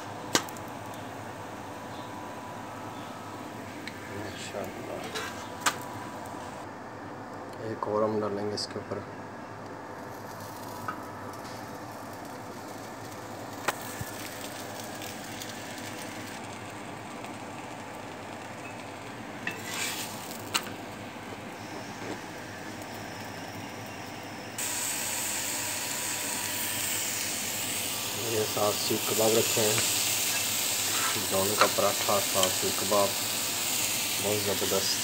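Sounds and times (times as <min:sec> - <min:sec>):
flatbread sizzling on griddle: 0:10.0 - 0:35.0.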